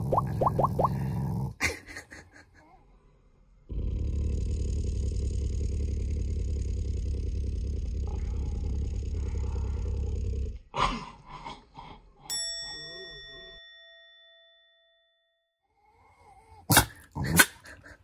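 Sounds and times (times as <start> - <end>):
dog growling: 0.0 - 1.6, 3.7 - 11.1
bell-like ding: 12.3 - 15.4.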